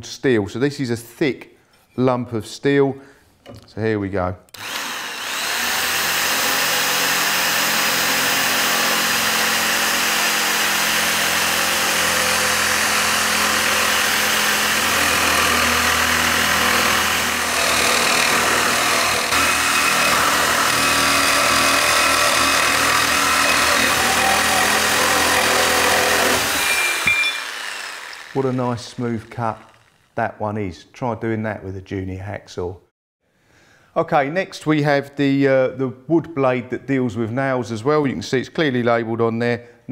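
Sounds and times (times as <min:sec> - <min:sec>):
reciprocating saw cutting steel: 0:04.5 - 0:30.1.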